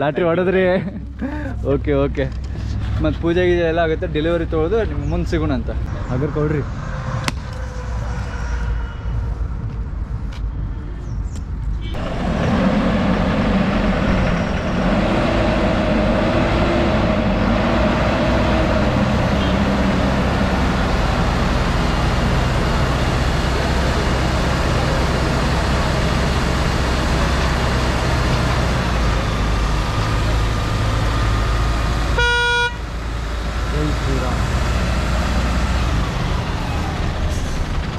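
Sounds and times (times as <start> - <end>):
diesel truck engine idling: 11.9 - 37.9.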